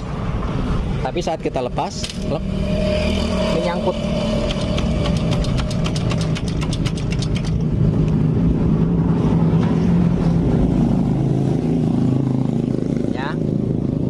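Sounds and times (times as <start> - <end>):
motorcycle engine idling: 4.0 - 7.7
quick ticks: 4.4 - 7.6.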